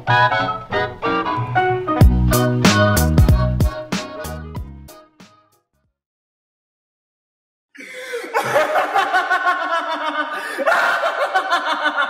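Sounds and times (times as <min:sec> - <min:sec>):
people laughing together: 0:08.1 - 0:12.0.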